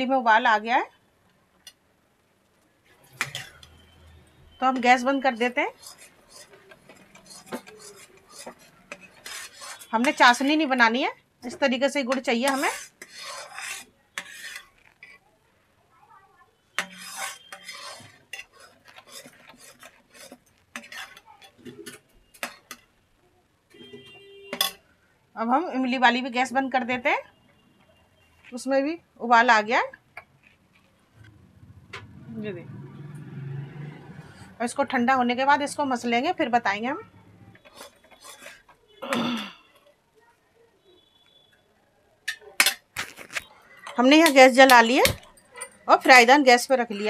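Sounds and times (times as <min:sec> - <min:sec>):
metal ladle scraping metal pan: 0:03.0 - 0:15.2, 0:16.7 - 0:22.9, 0:23.8 - 0:24.8, 0:37.5 - 0:39.0, 0:42.3 - 0:47.0
person clearing throat: 0:39.0 - 0:39.8.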